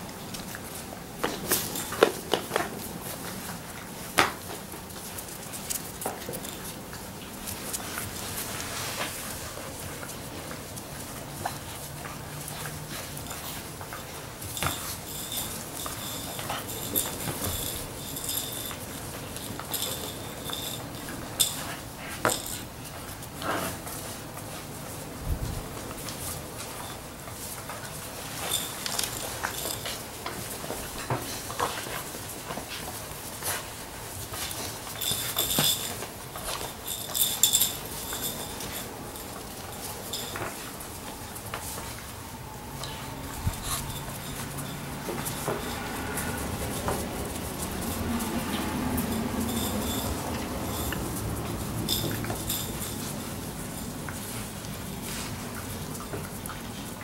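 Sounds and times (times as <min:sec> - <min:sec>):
claws clicking on concrete: 0:00.0 - 0:24.8, 0:25.7 - 0:57.0
high clinking: 0:00.3 - 0:08.7, 0:09.5 - 0:25.0, 0:25.8 - 0:55.3.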